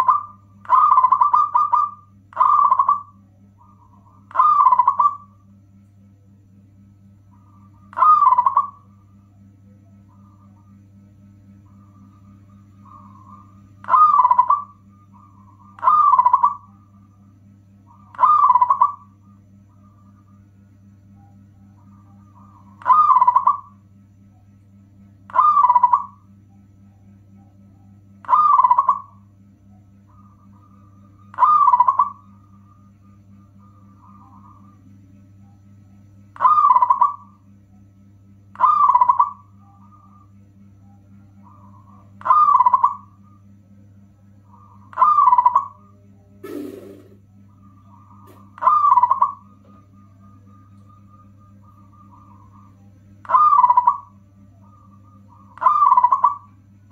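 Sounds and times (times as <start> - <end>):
dove cooing: 0.0 - 5.4, 7.3 - 9.2, 11.7 - 16.8, 17.9 - 19.2, 21.7 - 23.8, 25.3 - 26.2, 28.2 - 29.2, 30.1 - 32.6, 36.4 - 37.3, 38.6 - 40.3, 41.3 - 43.4, 44.5 - 45.8, 46.4 - 56.6
steady low hum: 0.0 - 56.9.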